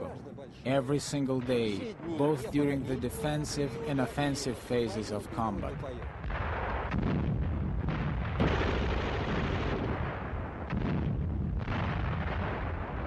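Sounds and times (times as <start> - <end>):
artillery fire and explosions rumble: 0.0 - 13.0
sharp explosion bang: 6.2 - 13.0.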